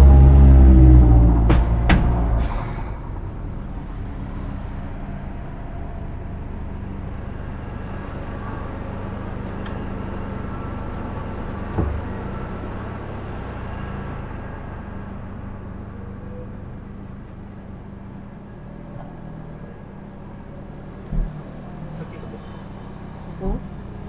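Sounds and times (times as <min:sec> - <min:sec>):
exhaust crack: 0:00.0 - 0:15.9
car engine droning: 0:00.0 - 0:24.0
low thump: 0:00.9 - 0:03.3, 0:11.7 - 0:12.4.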